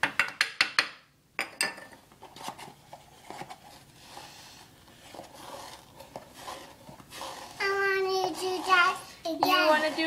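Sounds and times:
kitchenware clattering: 0.0 - 2.1.

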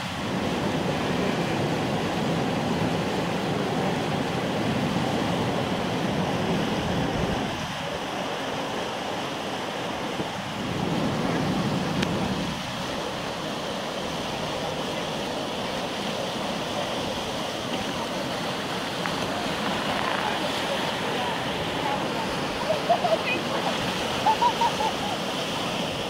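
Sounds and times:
rushing water rapid: 0.0 - 26.0.

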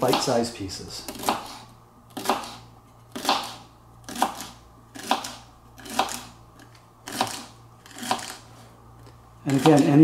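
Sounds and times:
knife chopping celery on a board: 0.0 - 0.4, 1.1 - 1.6, 2.2 - 6.3, 9.5 - 10.0.

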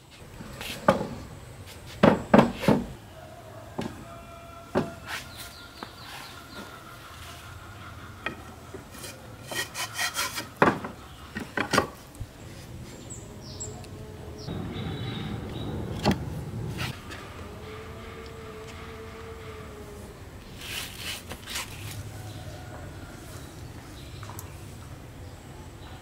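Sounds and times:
wooden frame parts knocking: 1.9 - 3.0, 4.7 - 5.0, 8.2 - 12.1.

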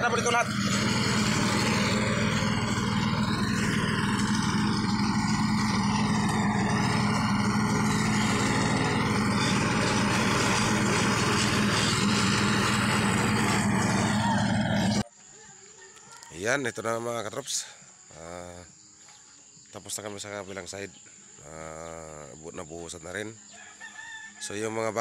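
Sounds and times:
roller engine running steadily: 0.0 - 15.0.

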